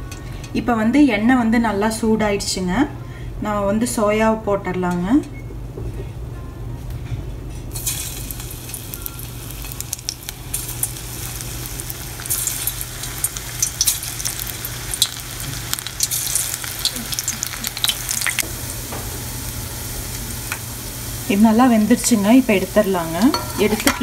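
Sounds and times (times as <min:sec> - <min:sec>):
low steady hum: 0:00.0 - 0:24.0
food deep-frying in oil: 0:07.7 - 0:24.0.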